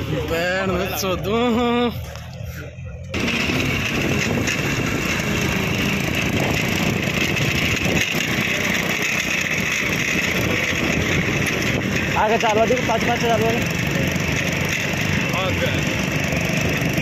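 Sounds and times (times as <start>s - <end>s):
motorcycle engine rumble: 0.0s - 17.0s
wind rushing over microphone: 3.2s - 8.4s.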